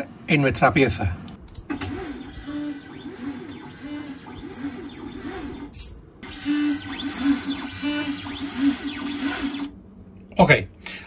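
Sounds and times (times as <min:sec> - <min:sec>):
stepper motors whining: 0:01.7 - 0:09.8.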